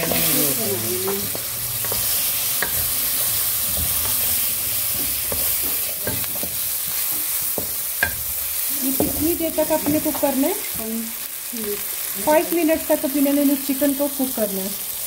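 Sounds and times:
chicken sizzling in oil: 0.0 - 15.0
spatula knocking against pan: 7.5 - 8.3.

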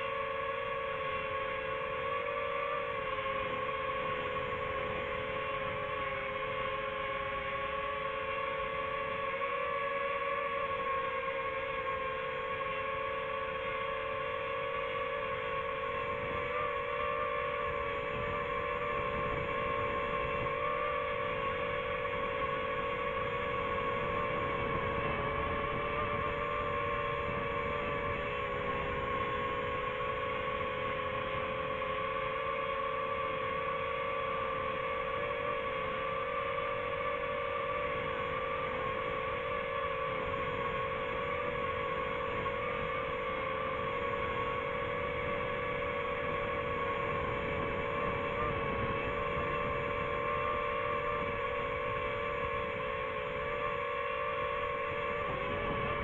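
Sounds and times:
drone propellers humming: 0.0 - 56.0.

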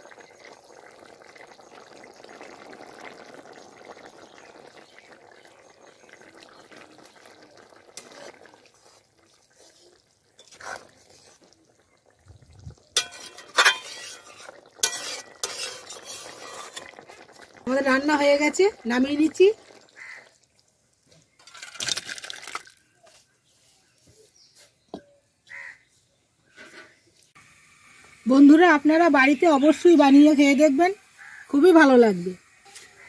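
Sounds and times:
curry bubbling: 0.0 - 24.0, 26.5 - 33.0
metal spatula scraping a pan: 8.0 - 11.6, 13.0 - 17.2, 26.5 - 27.0.

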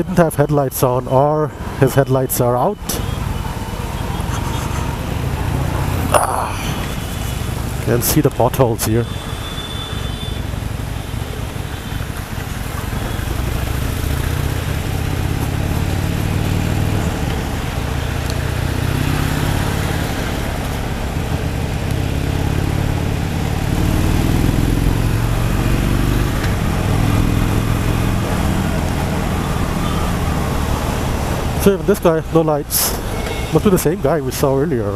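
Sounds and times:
wind and tyres on wet road: 0.0 - 34.9
motorcycle engine accelerating: 12.9 - 31.5.

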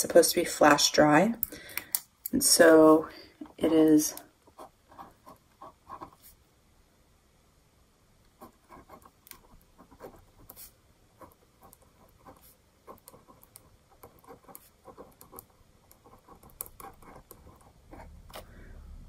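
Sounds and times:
pen scratching on paper: 4.5 - 6.4, 8.4 - 18.4.

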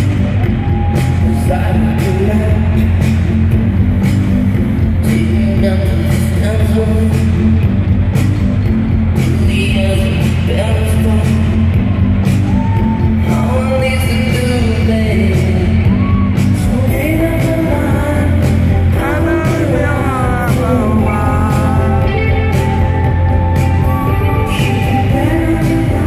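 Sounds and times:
heavy bass line: 0.0 - 26.0
steady drum beat: 0.0 - 26.0
sung vocals: 0.0 - 26.0
synth-pop band playing live: 0.0 - 26.0.

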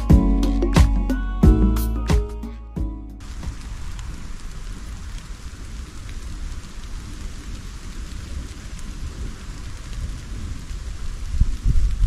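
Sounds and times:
raindrop ticks: 3.2 - 12.0
steady rain: 3.2 - 12.0.

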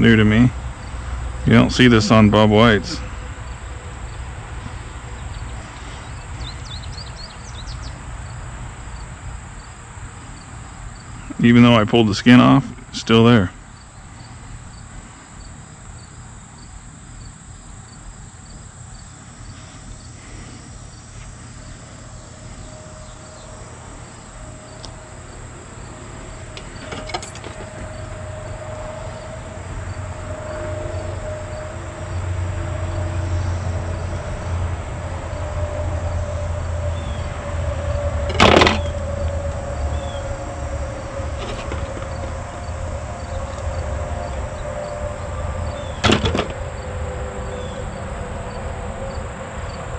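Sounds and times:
low steady hum: 0.0 - 48.4
insects chirping: 0.0 - 49.9
sharp knocks: 38.3 - 39.0, 46.0 - 46.6.

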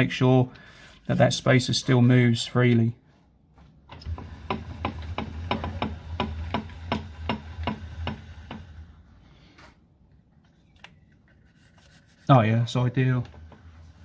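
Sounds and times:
lathe carriage clicking: 3.9 - 9.0.

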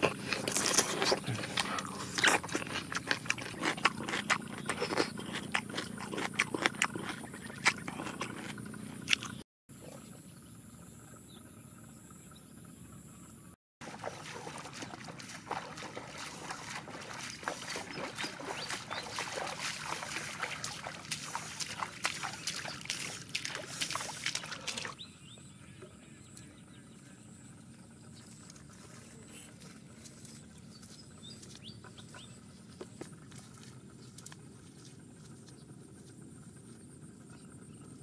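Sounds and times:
footsteps splashing in water: 13.8 - 25.0, 28.4 - 36.2.

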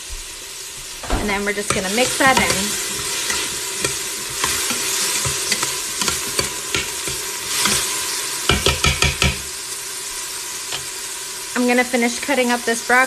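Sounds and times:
vegetables sizzling in pot: 0.0 - 13.0
louder taps: 1.0 - 2.6.

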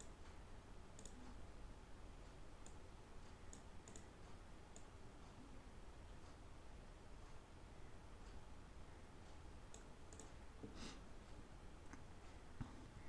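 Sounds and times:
faint computer mouse clicks: 1.0 - 1.4, 2.6 - 4.9, 9.7 - 10.4.

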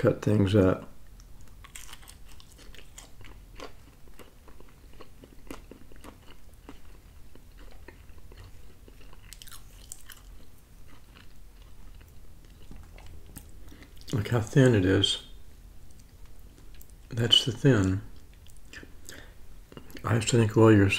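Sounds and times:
person chewing pizza: 1.0 - 14.3, 15.8 - 17.1, 18.0 - 20.1.

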